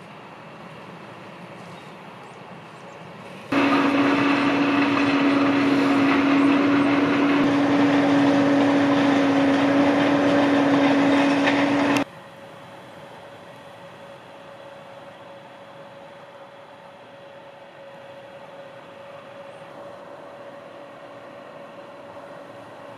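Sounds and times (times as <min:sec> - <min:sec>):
farm machinery engine running: 0:03.5 - 0:12.1, 0:13.9 - 0:22.9.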